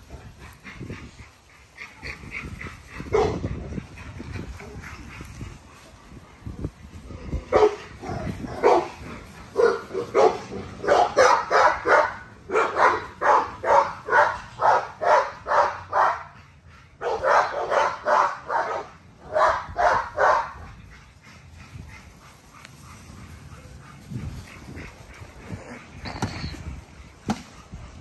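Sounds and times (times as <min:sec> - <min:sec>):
dog barking: 0:03.1 - 0:03.4, 0:07.5 - 0:07.8, 0:08.6 - 0:08.9, 0:09.6 - 0:16.3, 0:17.0 - 0:20.6.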